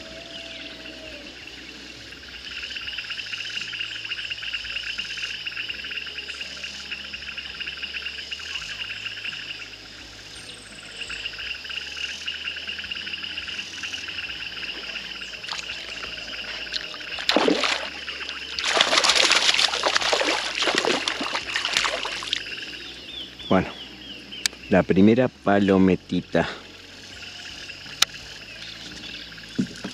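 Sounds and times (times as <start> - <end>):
high insect chorus: 0.0 - 29.9
fish thrashing in water: 14.7 - 22.6
fish splashing at water surface: 15.4 - 22.5.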